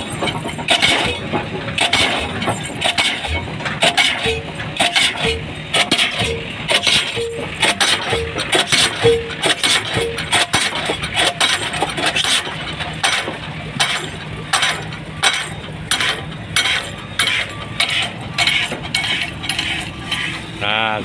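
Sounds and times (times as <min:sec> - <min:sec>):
pile hammer metallic blows: 0:00.0 - 0:21.0.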